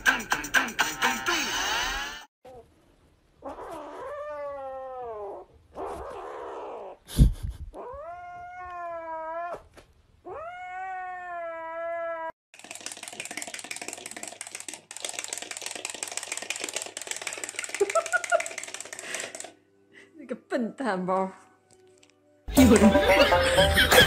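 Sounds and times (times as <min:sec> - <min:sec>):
kitten yowling: 0:10.3 - 0:12.4.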